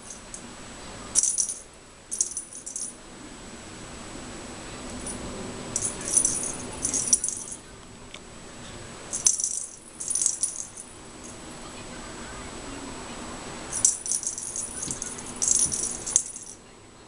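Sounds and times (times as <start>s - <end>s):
cat toy ball rattling: 5.8s - 7.6s, 9.2s - 10.9s, 13.7s - 16.6s.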